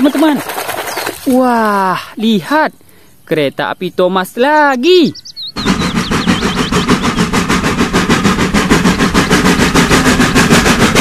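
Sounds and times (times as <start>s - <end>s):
steam locomotive chuffing: 5.5s - 11.0s.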